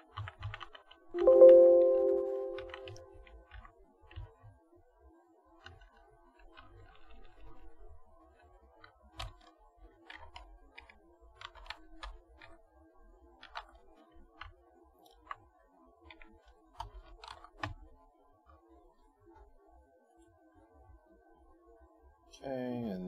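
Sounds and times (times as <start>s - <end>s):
typing on a keyboard: 0.0s - 4.4s, 8.3s - 12.6s, 13.4s - 15.4s, 16.1s - 17.8s.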